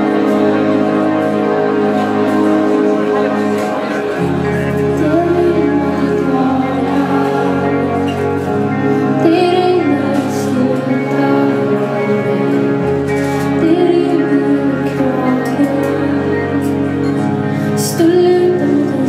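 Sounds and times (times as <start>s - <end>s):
guitar: 0.0s - 19.0s
live pop band playing: 0.0s - 19.0s
woman singing: 4.8s - 19.0s.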